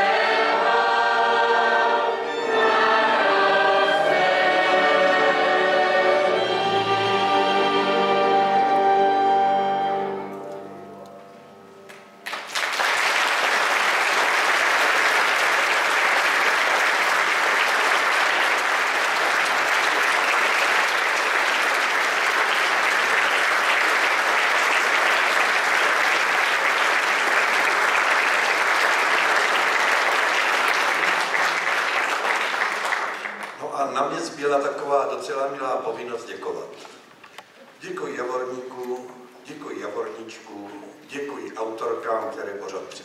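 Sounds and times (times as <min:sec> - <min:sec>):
audience applauding: 0:11.9 - 0:33.6.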